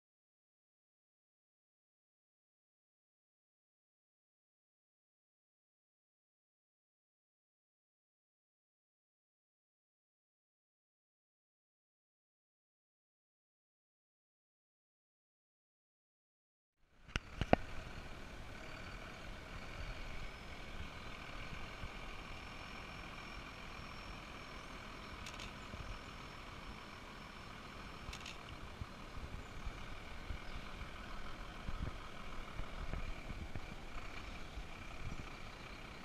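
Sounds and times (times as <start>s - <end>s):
diesel lorry engine running: 16.9s - 36.0s
sharp clicks: 25.2s - 25.6s, 28.0s - 28.6s.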